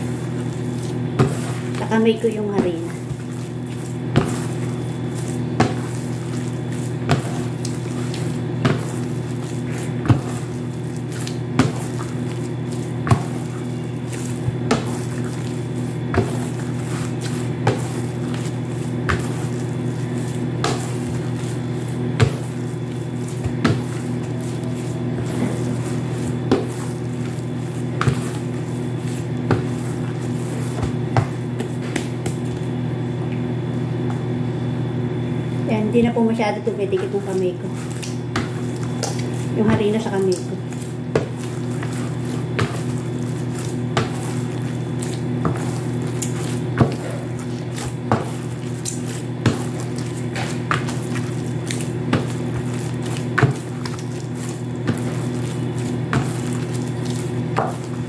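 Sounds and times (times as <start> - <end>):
dough thudding into plastic bowl: 2.6 - 32.6.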